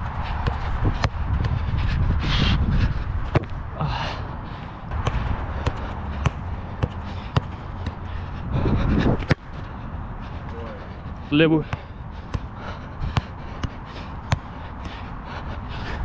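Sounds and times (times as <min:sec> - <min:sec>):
wind on microphone: 0:00.0 - 0:04.1, 0:08.2 - 0:09.4
person breathing hard: 0:00.1 - 0:16.0
football being tapped: 0:00.4 - 0:01.6, 0:03.3 - 0:03.6, 0:04.9 - 0:08.1, 0:11.6 - 0:15.1.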